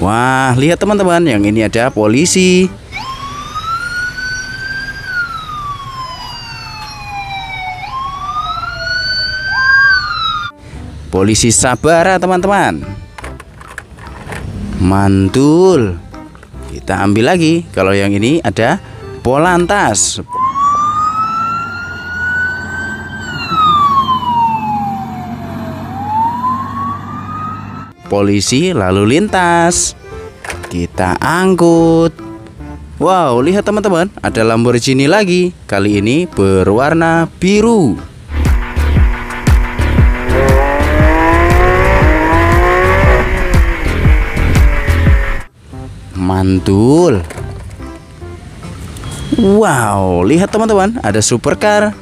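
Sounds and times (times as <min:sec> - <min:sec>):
electronic police siren wailing: 0:02.9 - 0:10.6, 0:19.9 - 0:28.0, 0:38.3 - 0:45.5
second siren tone: 0:02.9 - 0:10.6, 0:20.3 - 0:28.0, 0:38.3 - 0:44.6.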